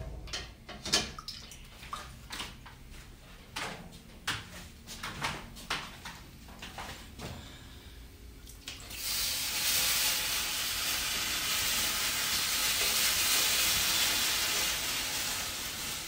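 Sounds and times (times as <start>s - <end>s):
steam hissing: 8.9s - 16.0s.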